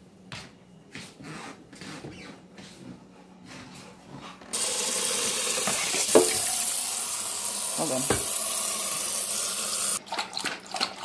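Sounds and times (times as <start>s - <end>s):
tap water running into metal bowl: 4.6s - 11.0s.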